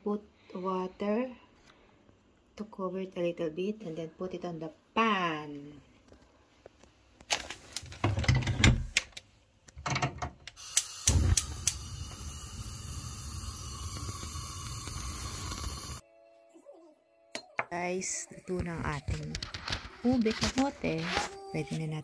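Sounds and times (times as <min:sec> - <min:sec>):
gas igniter clicks: 0:10.6 - 0:12.5
gas burner hissing: 0:10.6 - 0:16.0
gas burner lighting thump: 0:10.8 - 0:13.1.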